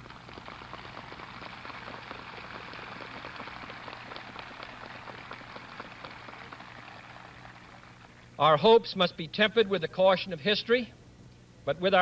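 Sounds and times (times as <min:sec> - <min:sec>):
audience applauding: 0:00.0 - 0:08.4
steady low hum: 0:00.0 - 0:12.0.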